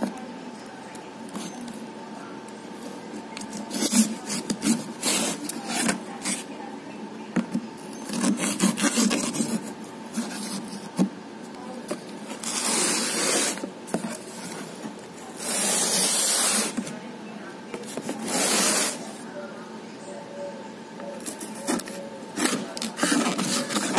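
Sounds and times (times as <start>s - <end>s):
knife cutting tape and cardboard: 3.4s - 6.4s, 8.1s - 11.0s, 12.3s - 14.2s, 15.4s - 16.8s, 18.0s - 19.0s.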